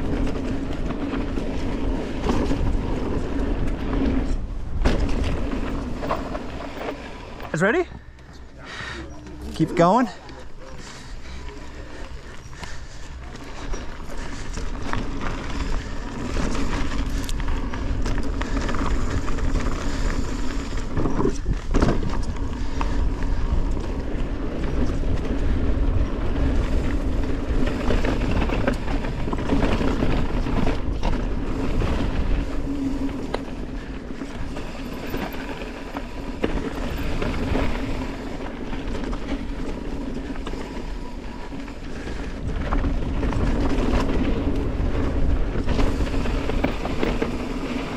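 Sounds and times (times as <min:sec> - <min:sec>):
deep rumble: 0:00.0 - 0:33.9
bike rattling over bumps: 0:00.0 - 0:47.9
bike tyres on gravel: 0:00.0 - 0:47.9.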